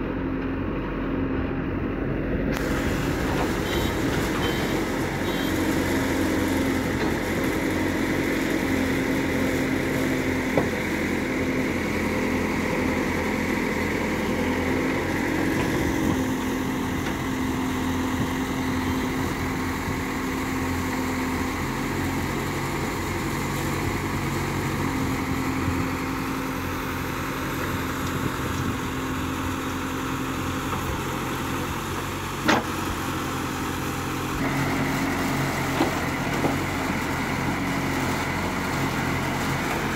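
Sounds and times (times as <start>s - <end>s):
diesel engine running: 0.0s - 39.9s
backhoe digging soil: 2.5s - 39.9s.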